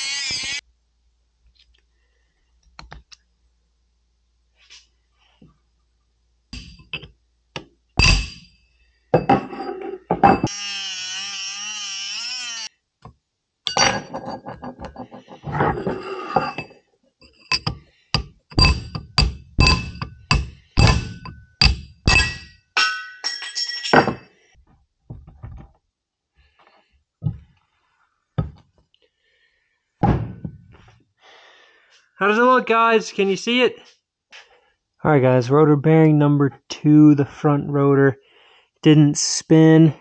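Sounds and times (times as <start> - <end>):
rotary tool whining: 0.0 - 0.6, 10.5 - 12.7
hammer striking chisel on metal: 6.6 - 7.1, 8.0 - 8.5, 17.5 - 23.1.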